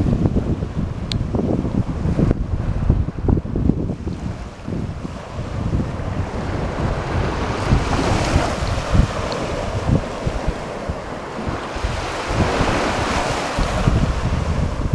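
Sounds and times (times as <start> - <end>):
ocean surf: 0.0 - 14.9
wind buffeting microphone: 0.0 - 14.9.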